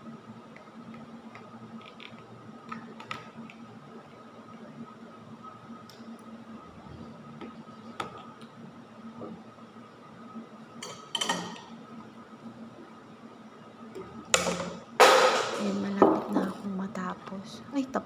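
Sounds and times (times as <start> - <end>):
faint steady hum: 0.0 - 18.0
clatter of tableware: 10.8 - 11.7.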